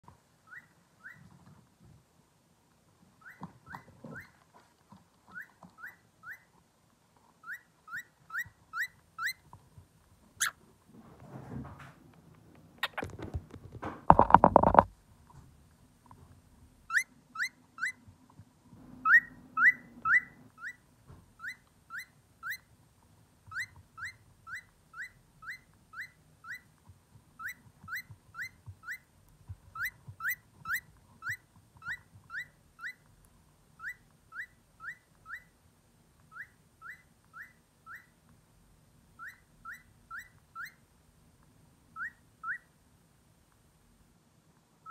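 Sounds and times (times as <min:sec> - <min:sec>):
cockatiel chirping: 0:00.4 - 0:01.4, 0:03.2 - 0:04.4, 0:05.3 - 0:06.6, 0:07.4 - 0:09.5, 0:10.3 - 0:10.6, 0:16.9 - 0:18.1, 0:19.0 - 0:22.8, 0:23.5 - 0:35.6, 0:36.2 - 0:38.2, 0:39.1 - 0:40.9, 0:41.9 - 0:42.8.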